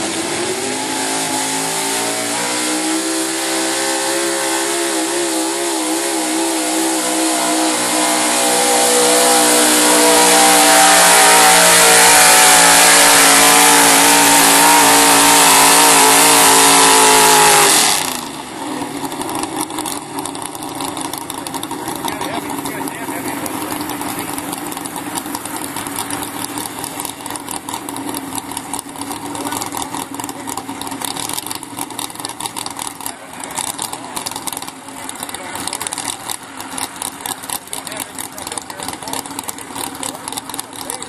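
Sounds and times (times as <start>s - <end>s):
truck engine at high revs: 0.0s - 41.0s
engine rough idle: 17.4s - 41.0s.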